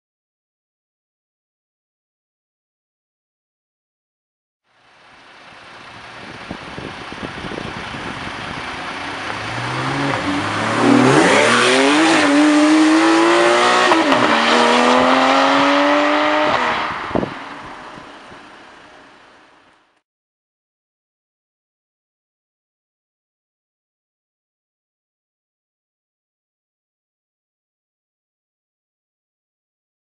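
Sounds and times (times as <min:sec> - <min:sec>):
car engine accelerating hard: 0:05.5 - 0:19.0.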